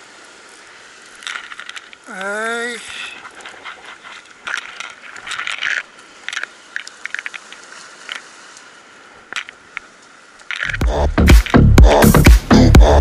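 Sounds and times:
loud background music: 10.8 - 13.0.

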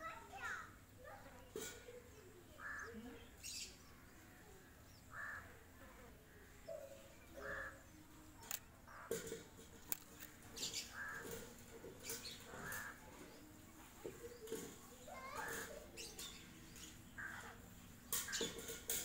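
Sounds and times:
sharp clicks: 8.4 - 8.7.

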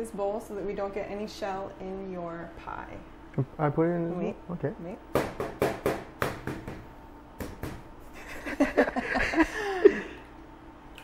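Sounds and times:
person laughing: 8.2 - 10.3.

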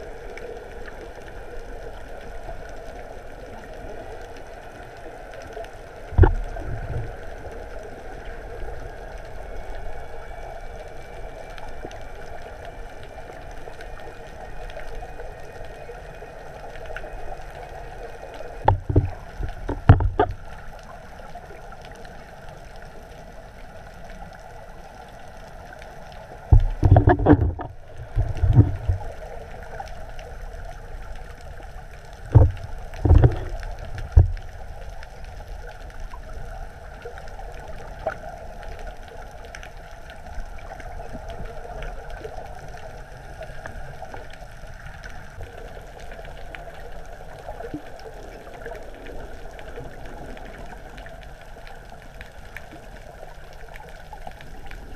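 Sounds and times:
underwater low hum: 0.0 - 54.9
bubbling and knocking underwater: 6.1 - 7.2, 18.6 - 20.4, 26.5 - 29.1, 32.3 - 34.5.

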